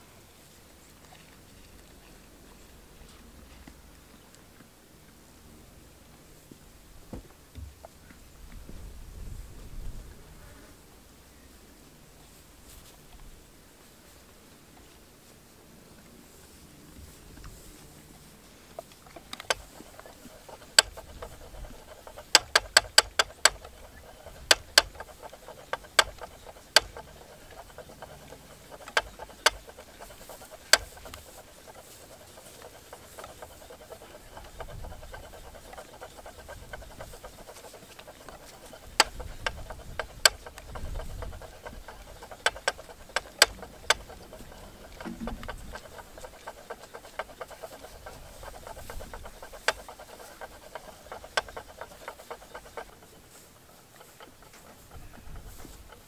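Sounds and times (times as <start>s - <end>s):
treadle spinning wheel running: 16.5s - 56.0s
sharp irregular clicks: 18.8s - 56.0s.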